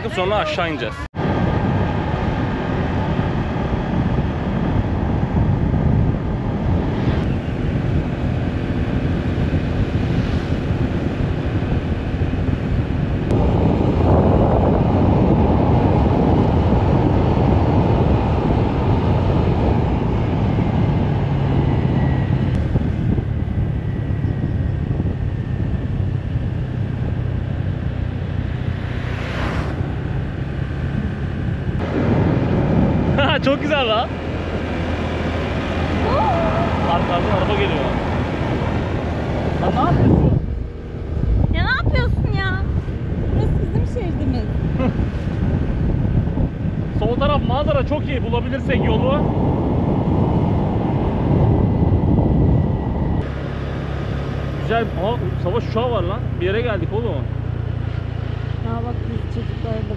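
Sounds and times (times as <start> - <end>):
road noise: 0.0 - 59.9
wind rushing over microphone: 0.0 - 59.9
motorbike engine running: 54.3 - 59.9.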